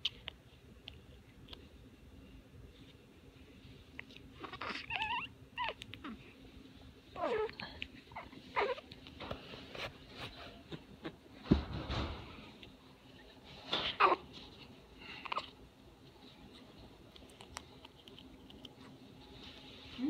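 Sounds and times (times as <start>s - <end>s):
infant cooing and grunting: 7.2s - 7.6s.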